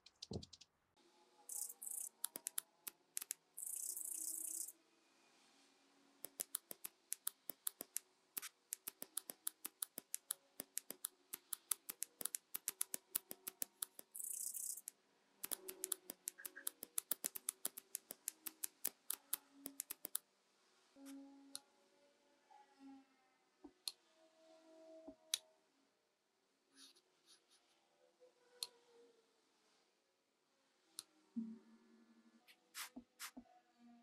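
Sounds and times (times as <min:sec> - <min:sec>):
sharp clicks: 0:01.5 - 0:04.7, 0:06.2 - 0:20.2.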